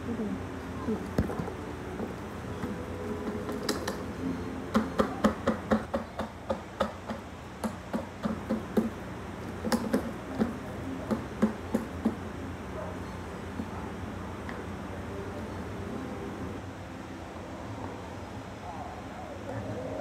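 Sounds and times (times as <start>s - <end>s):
steady low hum: 0.0s - 20.0s
hard plastic knocks: 4.7s - 12.2s.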